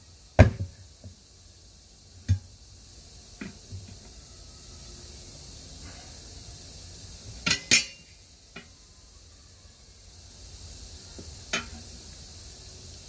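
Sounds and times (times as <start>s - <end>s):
tire spoons clanking on metal rim: 7.4s - 8.7s, 11.5s - 11.9s.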